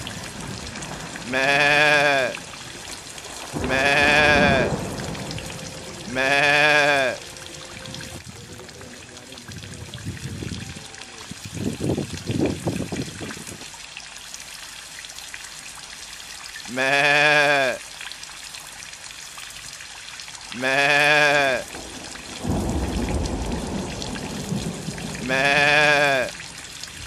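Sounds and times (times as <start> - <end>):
rainwater trickling and dripping: 0.0 - 27.0
goat or sheep bleating: 1.3 - 2.4, 3.6 - 4.7, 6.1 - 7.2, 16.7 - 17.8, 20.6 - 21.7, 25.2 - 26.4.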